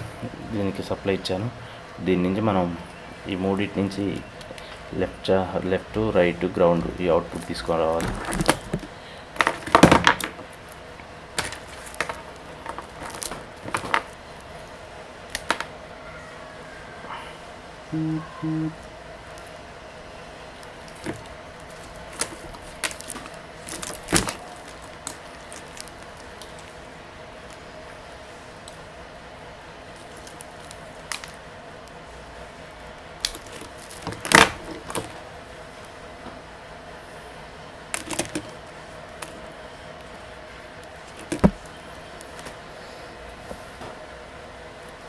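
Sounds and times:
faint steady hum: 0.0s - 45.0s
wires rustling: 7.0s - 15.8s, 18.8s - 36.2s, 37.8s - 45.0s.

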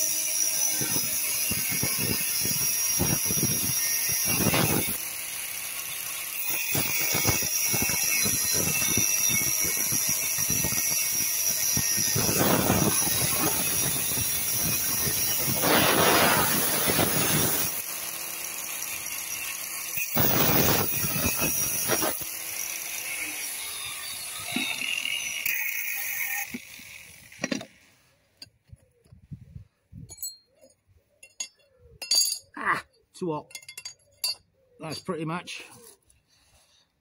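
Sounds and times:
angle grinder cutting sheet: 0.0s - 27.8s.

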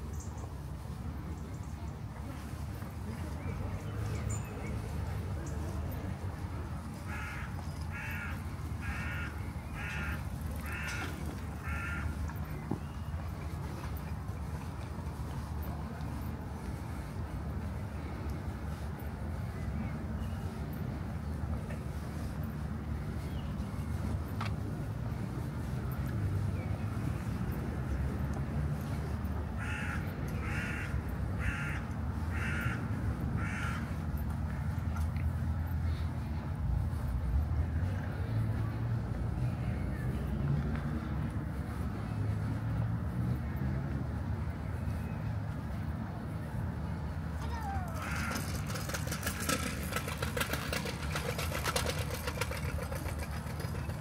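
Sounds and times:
crow cawing: 7.1s - 12.2s, 29.6s - 32.8s, 33.4s - 33.8s, 47.6s - 48.4s
bird calling: 47.4s - 48.5s.

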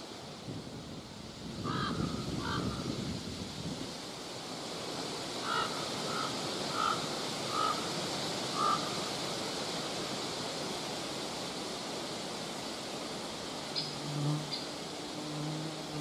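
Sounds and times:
steady wind: 0.0s - 16.0s
bird calls: 8.6s - 9.0s.

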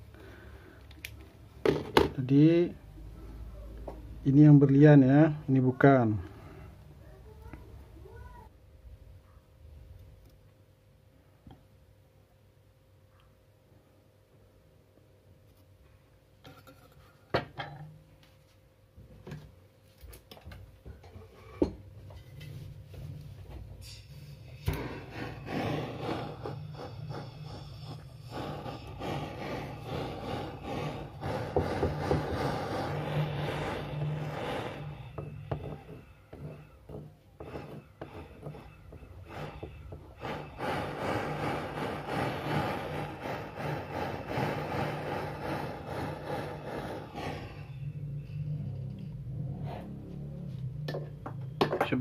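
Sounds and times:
gas torch flame hissing: 23.7s - 49.2s.

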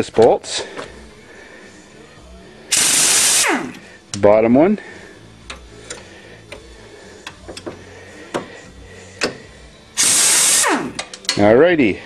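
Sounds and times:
pneumatic wrench running: 2.7s - 3.8s, 10.0s - 11.2s.

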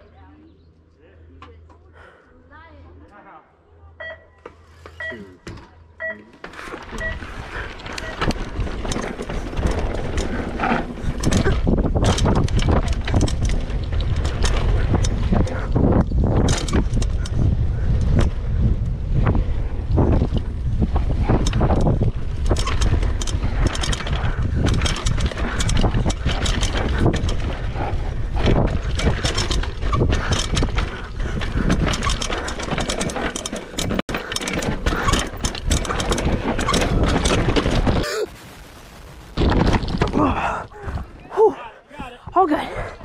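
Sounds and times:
bike clattering on dirt: 6.4s - 38.1s, 39.4s - 40.6s
wind buffeting microphone: 7.4s - 38.6s.

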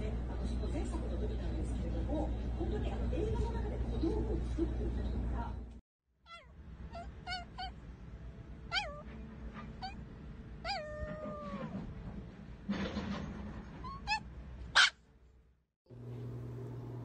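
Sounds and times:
small dog howling: 6.3s - 7.8s, 8.7s - 9.1s, 9.7s - 10.0s, 10.6s - 11.8s.

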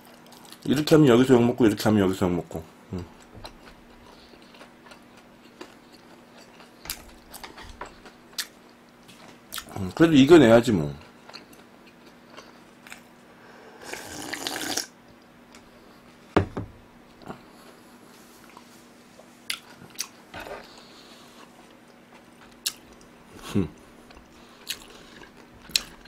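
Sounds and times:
quiet chewing: 2.9s - 10.0s, 11.0s - 13.2s, 17.1s - 26.0s
slurping broth from a bowl: 13.8s - 14.9s
bowl set down on wooden table: 16.4s - 16.8s.

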